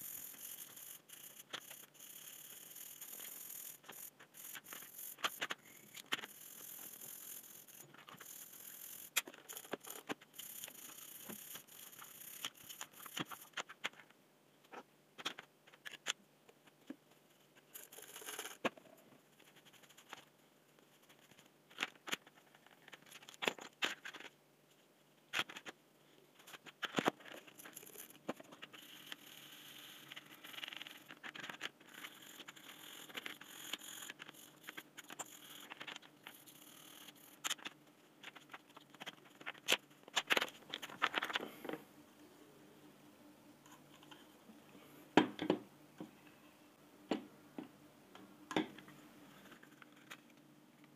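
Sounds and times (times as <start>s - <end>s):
brush scrubbing plastic: 0.0s - 13.8s
plastic parts clicking and knocking: 9.2s - 17.1s, 26.4s - 29.2s, 30.0s - 41.8s, 45.2s - 46.1s.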